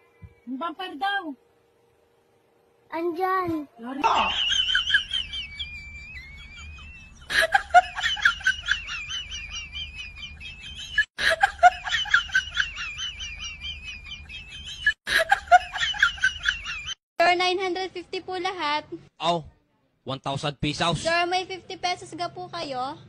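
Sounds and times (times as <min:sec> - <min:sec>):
high squeaky sped-up laugh: 0:04.0 - 0:17.0
thin wavering whistle tone: 0:04.2 - 0:07.3.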